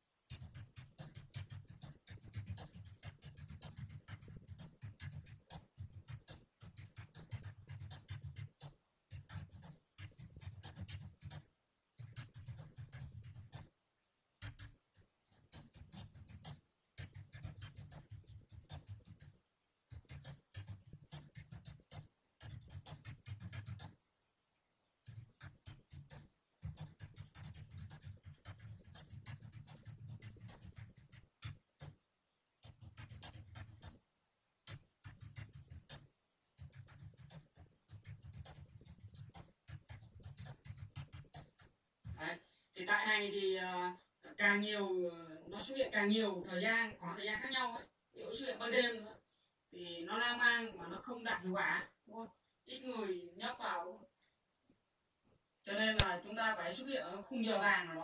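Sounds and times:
typing on keyboard: 0:00.3 - 0:13.7, 0:14.4 - 0:24.0, 0:25.0 - 0:32.0, 0:32.6 - 0:34.0, 0:34.6 - 0:42.2.

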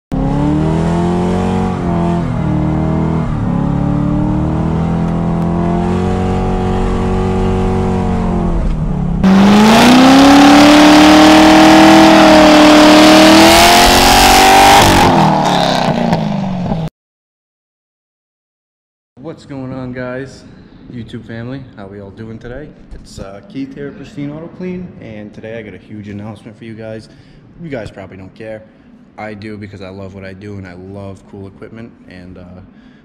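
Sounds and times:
car engine revving: 0:00.1 - 0:16.9.

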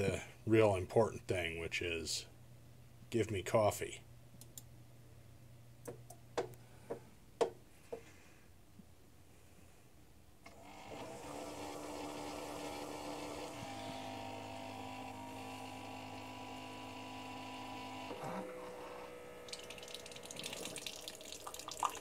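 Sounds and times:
coffee maker pump humming: 0:10.5 - 0:22.0
coffee streaming into a mug: 0:19.5 - 0:22.0.

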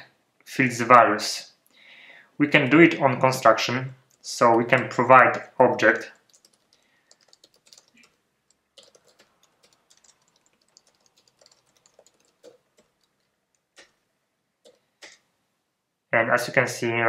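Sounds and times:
typing on computer keyboard: 0:05.9 - 0:13.9, 0:14.6 - 0:15.2.

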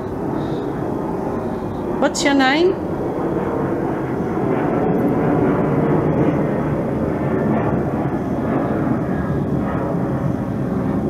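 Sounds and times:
loud choppy static noise: 0:00.0 - 0:07.1.

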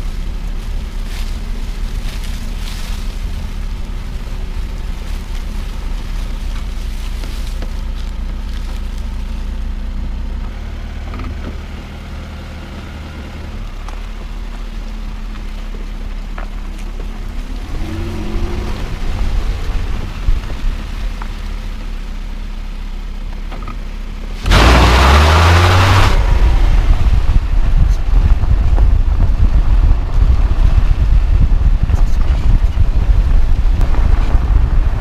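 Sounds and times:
tyre rumbling on dirt track: 0:00.0 - 0:22.5, 0:23.2 - 0:35.0.

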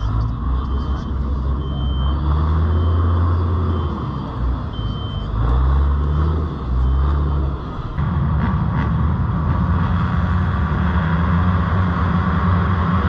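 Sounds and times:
backup alarm beeping: 0:00.0 - 0:05.5
heavy truck engine running: 0:00.0 - 0:13.0.

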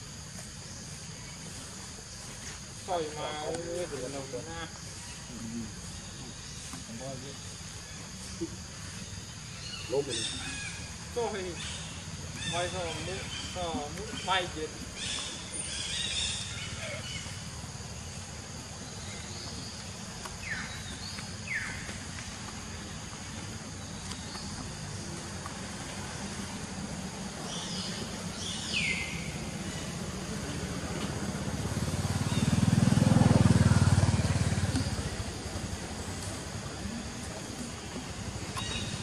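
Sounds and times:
steady low hum: 0:10.5 - 0:39.0
vehicle engine passing: 0:20.8 - 0:39.0.

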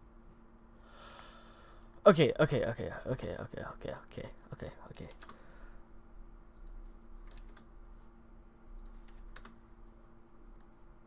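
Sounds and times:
low electrical hum: 0:00.0 - 0:11.0
keyboard and mouse clicks: 0:05.1 - 0:05.4, 0:06.6 - 0:07.7, 0:08.8 - 0:09.6.

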